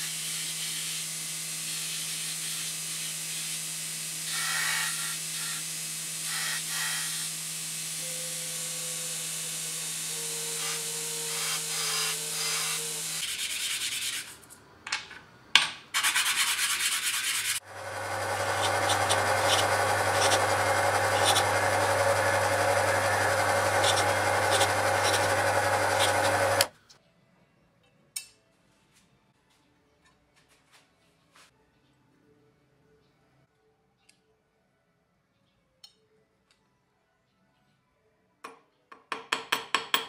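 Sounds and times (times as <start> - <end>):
electric drill boring metal: 0.0 - 13.2, 17.6 - 26.7
belt sander humming: 4.2 - 13.2, 17.4 - 26.7.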